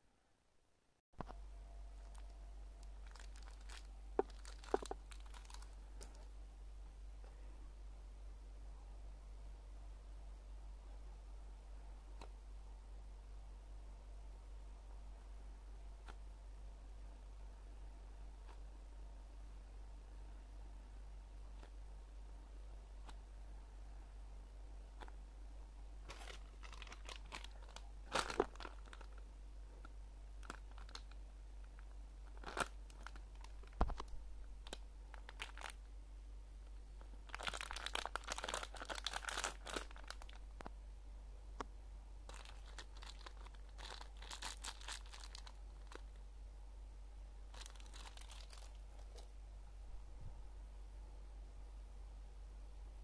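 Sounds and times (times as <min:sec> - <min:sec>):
plastic packaging crinkling: 0:02.0 - 0:06.3, 0:26.0 - 0:29.2, 0:29.8 - 0:35.8, 0:37.2 - 0:40.7, 0:42.3 - 0:46.2, 0:47.5 - 0:49.3.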